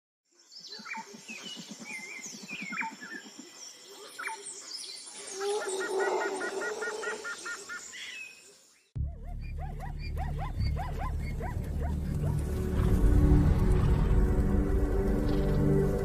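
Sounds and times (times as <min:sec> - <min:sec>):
birds chirping and calling: 0:00.4 - 0:13.1
low rapid pulsing: 0:11.6 - 0:16.0.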